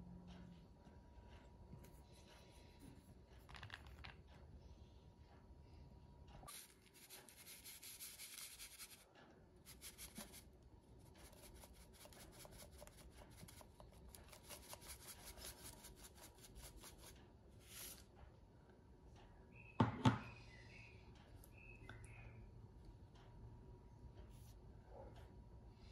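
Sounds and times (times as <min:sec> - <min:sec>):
chocolate rasping on a grater: 0:06.5 - 0:09.1, 0:11.1 - 0:17.2.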